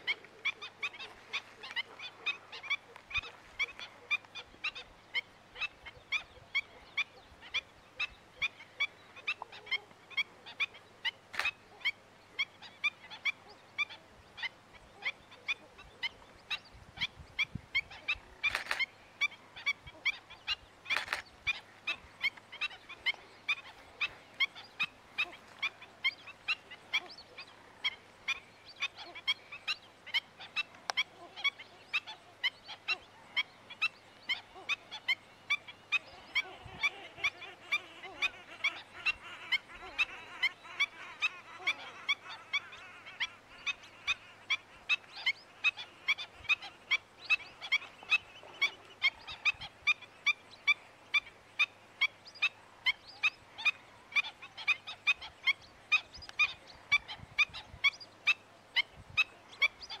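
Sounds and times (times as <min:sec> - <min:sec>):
flamingos honking: 0:17.8 - 1:00.0.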